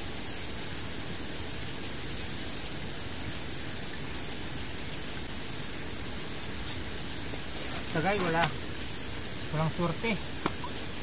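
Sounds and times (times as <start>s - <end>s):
insects trilling: 0.0s - 11.0s
high thin insect buzz: 2.1s - 8.7s.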